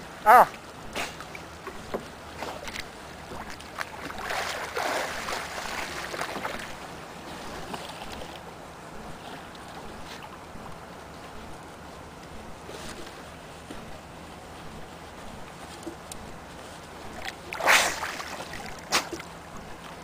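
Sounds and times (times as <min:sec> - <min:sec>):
water lapping against boat hull: 0:00.0 - 0:20.0
splashing of diver: 0:03.9 - 0:06.8, 0:17.2 - 0:19.2.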